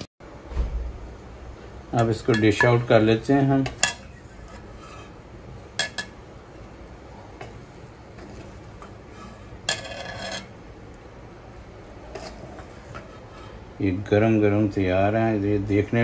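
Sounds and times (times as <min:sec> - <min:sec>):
spatula scraping metal pan: 0:03.8 - 0:05.2, 0:08.2 - 0:10.6, 0:12.1 - 0:13.4.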